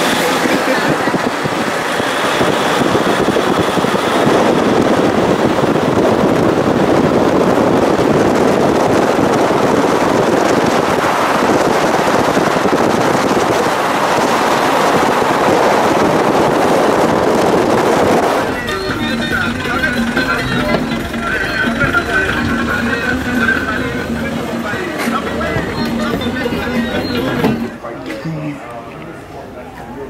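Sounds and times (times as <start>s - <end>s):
wind rushing: 0.0s - 27.8s
car road noise: 0.0s - 28.0s.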